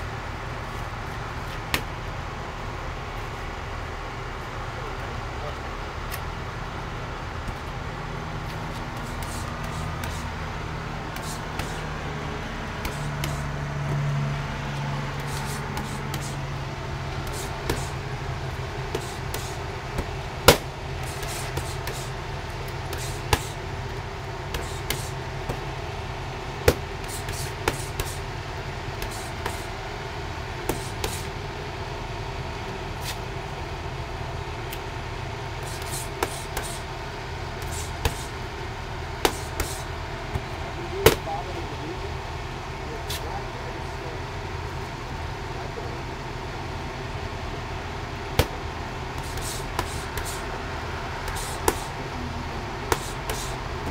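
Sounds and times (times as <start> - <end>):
road traffic rumble: 0.0 - 53.9
boxing gloves punching focus mitts: 1.6 - 2.0, 8.7 - 10.4, 11.1 - 12.0, 12.6 - 13.5, 15.2 - 16.4, 17.2 - 25.8, 26.6 - 28.3, 28.9 - 29.8, 30.6 - 31.3, 35.6 - 36.9, 37.5 - 38.4, 39.1 - 41.3, 48.3 - 50.5, 51.2 - 52.0, 52.8 - 53.9.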